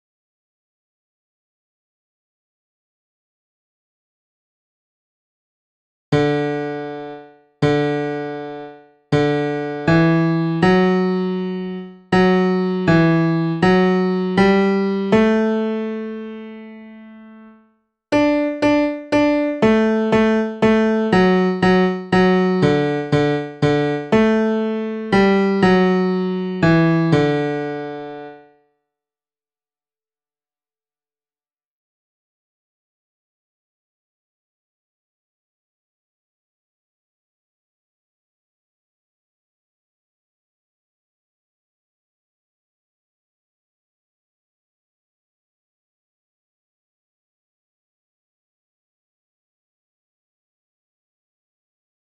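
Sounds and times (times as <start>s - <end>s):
piano-like keyboard melody: 6.1s - 28.6s.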